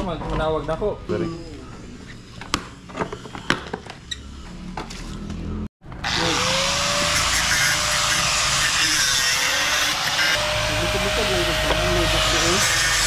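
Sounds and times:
angle grinder grinding metal: 6.0s - 13.0s.

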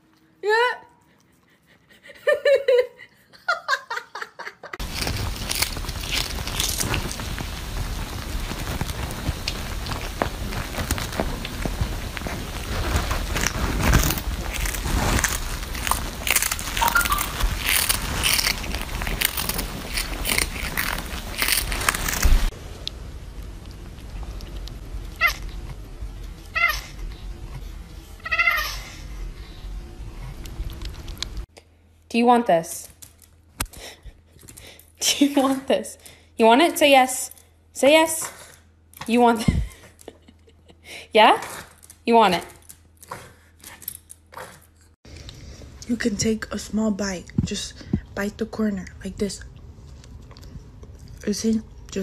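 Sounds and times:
cat crunching dried fish: 4.8s - 22.5s.

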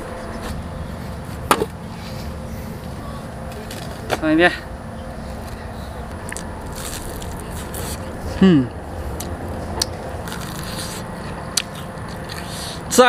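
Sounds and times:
crispy food crunching: 5.5s - 8.1s, 9.1s - 12.5s
person humming mm: 8.3s - 8.8s.

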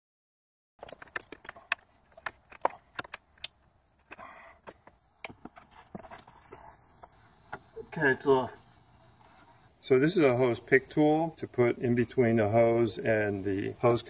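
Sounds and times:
rubber hose clicking and creaking: 0.8s - 7.7s.

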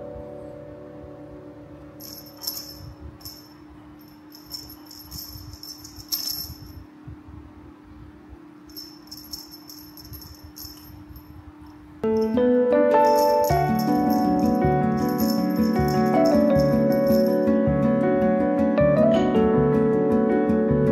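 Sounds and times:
steady low hum: 0.0s - 18.3s
small bell jingling: 2.0s - 6.8s, 8.7s - 11.4s, 12.0s - 17.6s.

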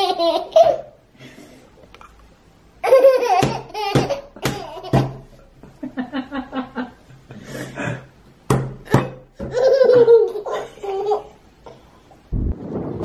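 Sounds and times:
baby laughing and squealing: 2.8s - 5.2s, 9.5s - 11.3s.

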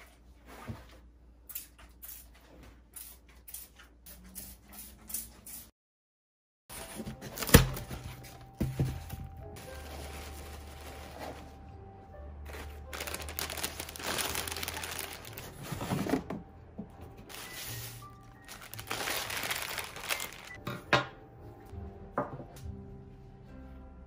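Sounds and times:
background music: 6.7s - 24.0s
cellophane crinkling: 12.5s - 16.0s, 17.3s - 20.6s.

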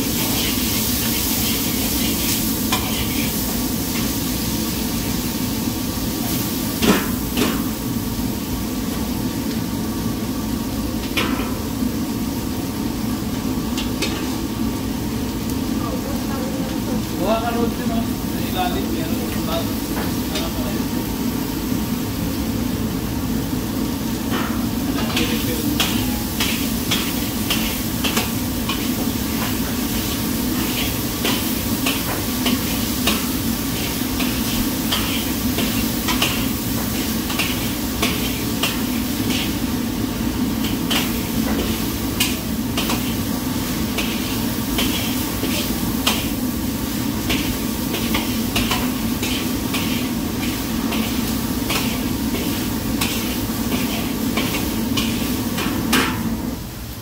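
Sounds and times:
metal utensil scraping wok: 25.0s - 39.8s, 40.5s - 46.4s, 47.1s - 56.1s.

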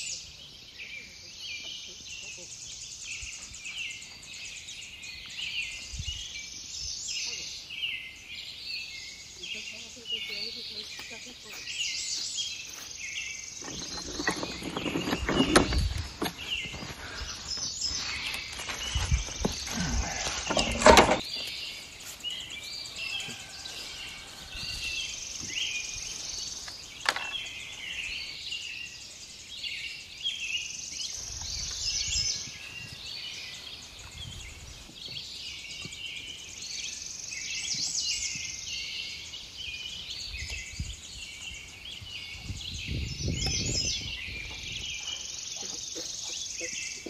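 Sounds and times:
small birds chirping: 0.0s - 47.0s
clatter and thumps: 13.6s - 16.9s, 18.8s - 21.2s.

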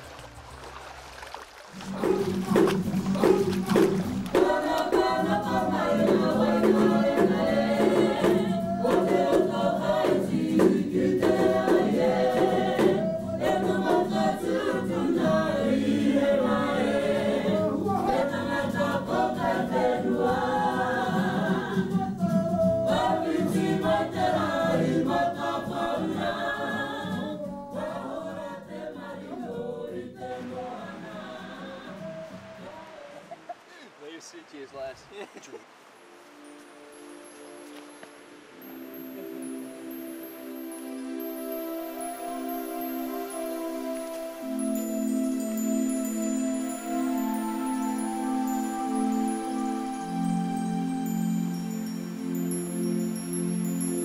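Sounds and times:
music with singing voices: 1.8s - 33.5s, 36.3s - 54.0s.

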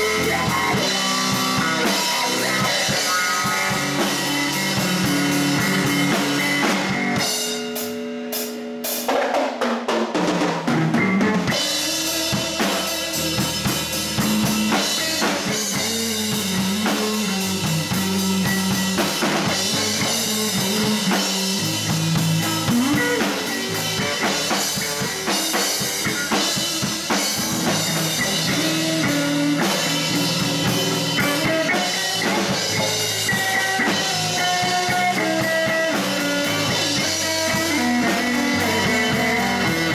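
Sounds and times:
blues band playing: 0.0s - 39.9s
drum and cymbal hits: 0.0s - 39.9s.

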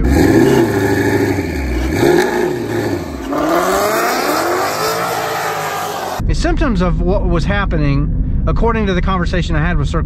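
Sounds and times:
car engine revving and accelerating: 0.0s - 6.2s.

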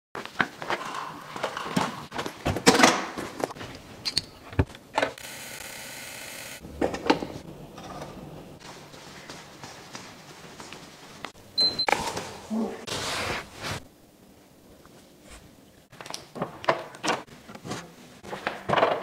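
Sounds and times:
ultrasonic cleaner buzzing: 5.0s - 7.7s.

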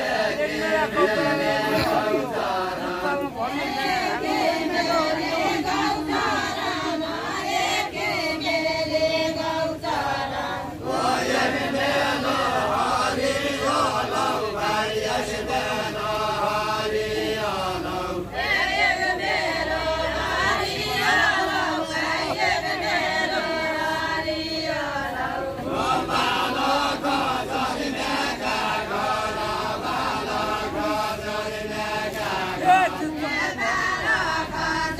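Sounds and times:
group singing folk chant: 0.0s - 34.9s.

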